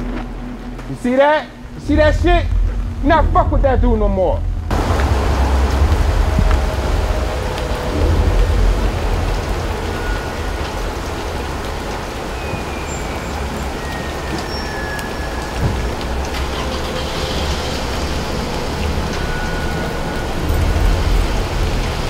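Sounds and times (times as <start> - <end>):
rain on street and cars: 0.0 - 22.0
car approaching: 1.5 - 12.3, 15.4 - 22.0.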